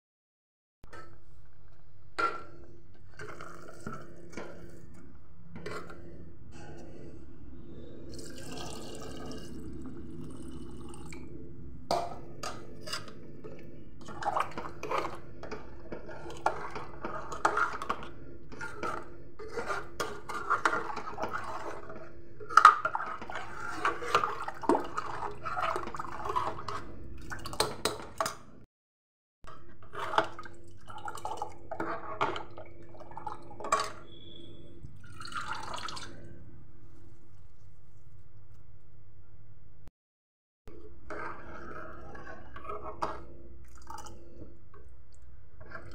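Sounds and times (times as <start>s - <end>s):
ladle knocking and scraping pot: 2.1s - 7.1s, 11.9s - 28.4s, 29.5s - 34.5s, 40.8s - 44.9s.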